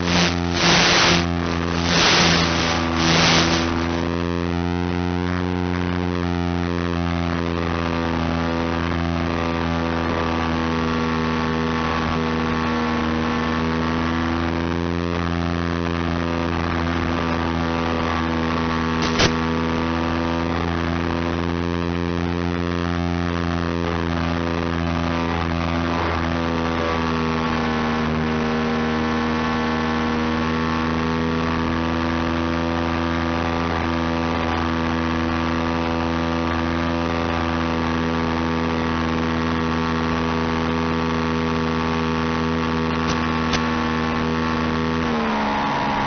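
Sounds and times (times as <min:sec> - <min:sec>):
electric motor and propeller humming: 0:00.0 - 0:46.0
sharp click: 0:19.0 - 0:19.4.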